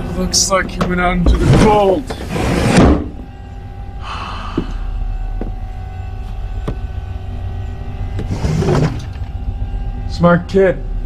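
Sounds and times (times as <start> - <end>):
low steady hum: 0.0 - 11.0
thin high tone: 3.0 - 11.0.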